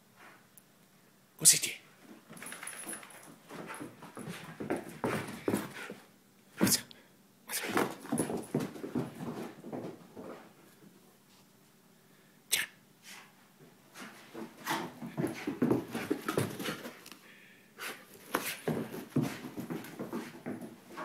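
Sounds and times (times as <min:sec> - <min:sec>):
dog scrabbling on carpet: 0:02.4 - 0:06.0, 0:07.6 - 0:10.6, 0:14.0 - 0:17.0, 0:18.2 - 0:21.0.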